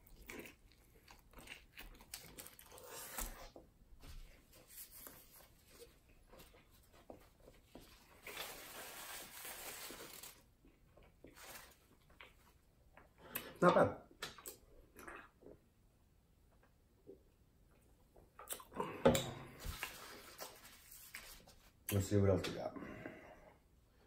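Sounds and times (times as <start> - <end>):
paper napkin rustling: 8.2 - 10.4.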